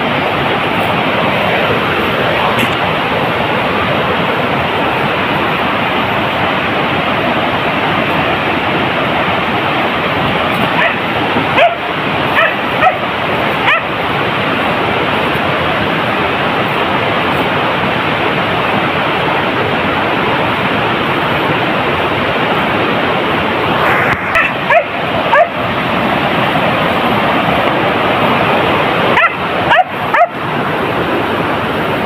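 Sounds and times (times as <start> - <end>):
loud steady rushing noise: 0.0 - 32.0
dog yelping: 10.8 - 11.0, 11.6 - 13.0, 13.6 - 13.9, 24.4 - 25.6, 29.2 - 30.4.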